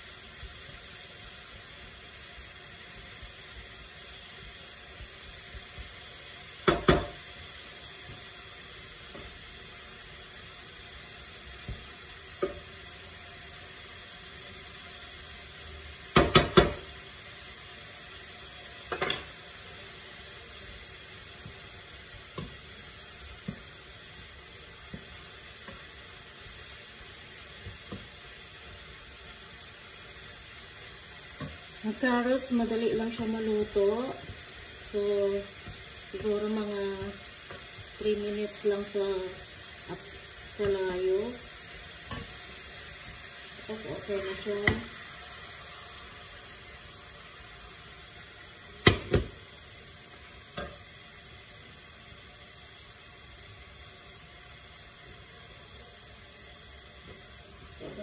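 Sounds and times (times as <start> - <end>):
vegetables sizzling in pan: 0.0 - 58.0
spatula knocking against pan: 6.6 - 7.2, 16.1 - 16.8.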